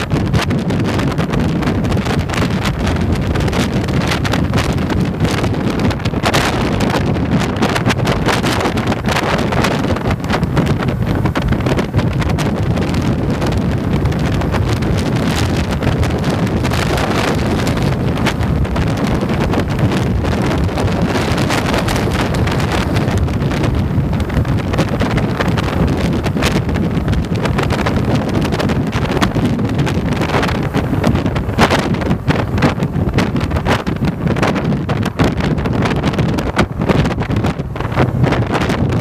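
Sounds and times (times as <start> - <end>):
tyre noise on road: 0.0 - 39.0
wind rushing over microphone: 0.0 - 39.0.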